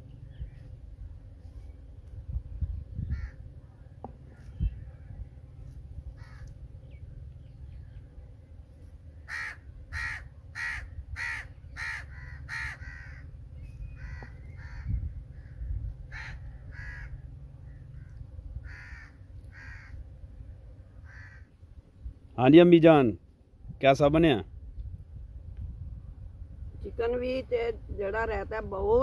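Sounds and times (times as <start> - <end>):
steady low rumble: 0.0 - 21.0
crow cawing: 3.1 - 3.4, 6.1 - 6.5, 9.2 - 20.0, 21.0 - 21.6.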